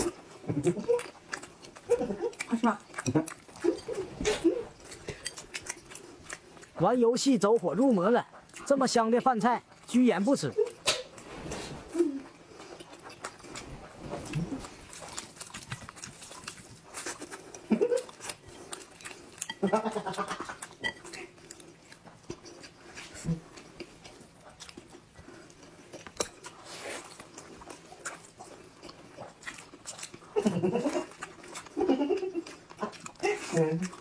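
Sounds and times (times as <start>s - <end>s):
wet chewing and lip smacks: 0.0s - 11.2s, 12.2s - 34.0s
throaty mouth noises: 10.8s - 21.4s
slurping noodles: 11.1s - 15.4s.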